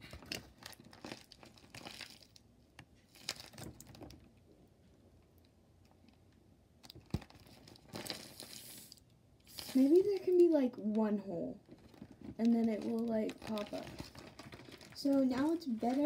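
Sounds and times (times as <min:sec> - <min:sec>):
paper and plastic crinkling: 0:00.0 - 0:02.4, 0:03.0 - 0:04.3, 0:06.9 - 0:08.9, 0:09.5 - 0:10.6, 0:11.6 - 0:16.0.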